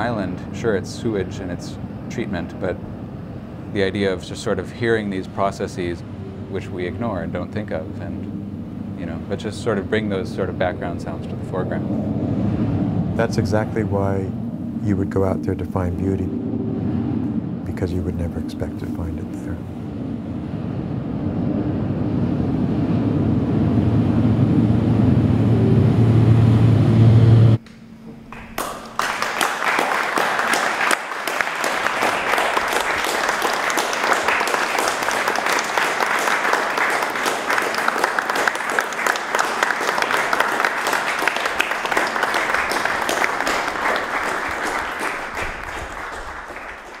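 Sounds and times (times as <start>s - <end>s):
low machine drone: 0.0s - 47.0s
audience applauding: 28.3s - 47.0s.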